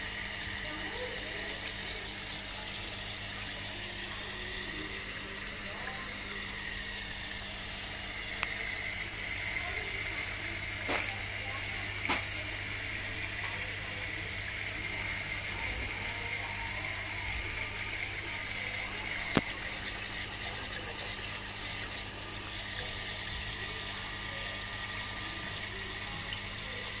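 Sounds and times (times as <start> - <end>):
fountain water trickling: 0.0 - 27.0.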